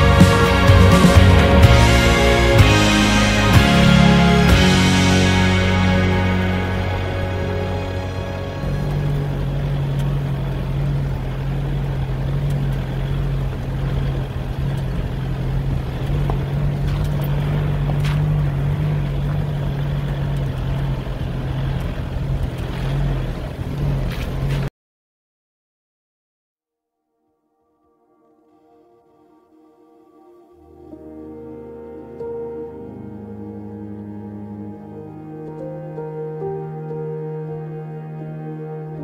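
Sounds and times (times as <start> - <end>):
car engine droning: 0.0 - 24.7, 30.3 - 39.0
tyres on gravel road: 0.0 - 24.7.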